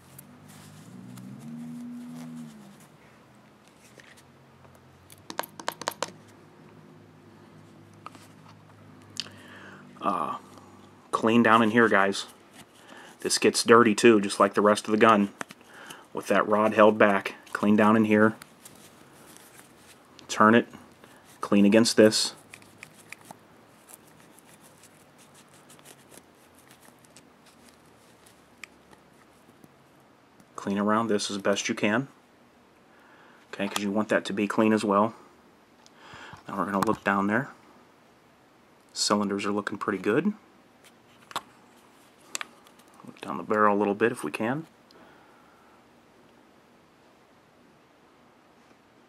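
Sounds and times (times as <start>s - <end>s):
faint steady hum: 0.0s - 49.0s
small clicks and taps: 4.6s - 6.2s.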